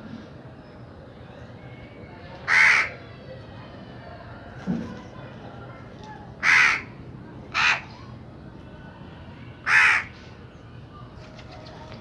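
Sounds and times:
crow cawing: 2.5s - 3.0s, 6.4s - 6.9s, 7.5s - 7.9s, 9.6s - 10.2s.

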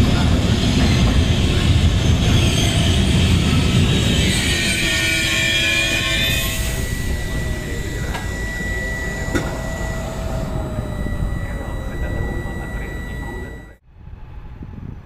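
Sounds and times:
wheels ringing on rails: 0.0s - 13.8s
train rumble: 0.0s - 15.0s
faint steady high tone: 4.4s - 13.8s.

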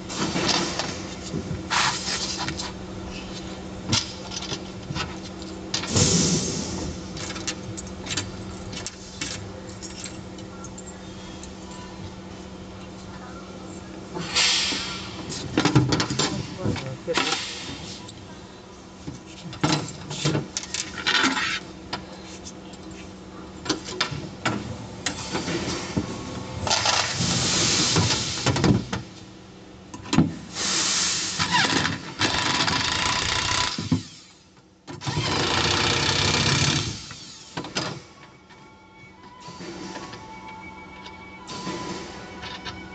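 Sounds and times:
electric power tool driving bolts: 31.4s - 38.0s.

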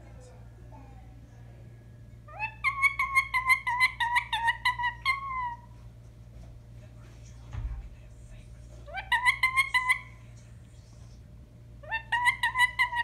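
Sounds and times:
parakeet calling: 2.2s - 5.8s, 8.9s - 10.3s, 11.8s - 13.0s.

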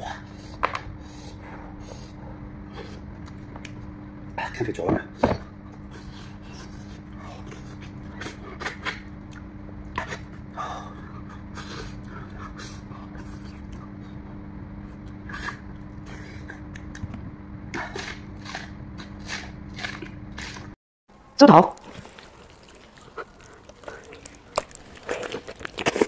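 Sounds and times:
steady low hum: 0.0s - 26.0s
man chewing wetly: 6.5s - 14.2s, 21.7s - 26.0s
biting into raw onion: 21.8s - 26.0s.

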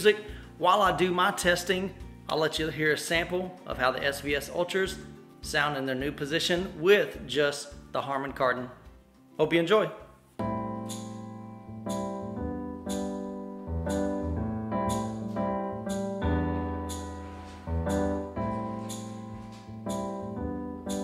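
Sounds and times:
piano music through speakers: 10.4s - 21.0s.

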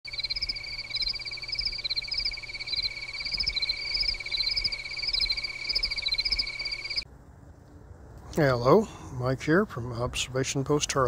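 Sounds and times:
higher insect chirping: 0.1s - 7.0s
insect high trill: 0.1s - 7.0s.

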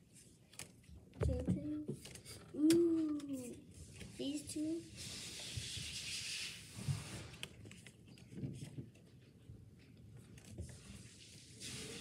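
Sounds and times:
cards tapped and shuffled: 0.4s - 3.4s, 7.3s - 10.8s.

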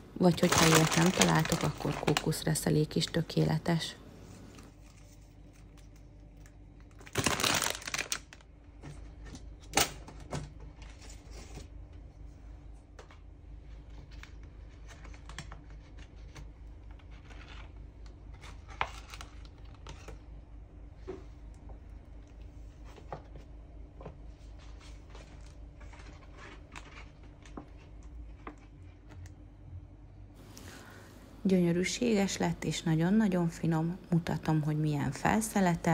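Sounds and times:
paper bag crinkling: 0.2s - 3.2s, 4.4s - 8.5s.

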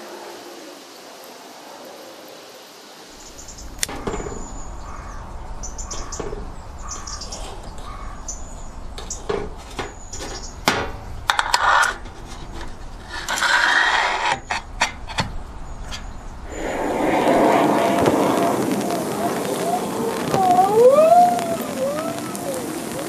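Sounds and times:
birds chirping: 3.1s - 11.2s, 14.3s - 23.0s
metal tray scraping: 9.0s - 18.5s.

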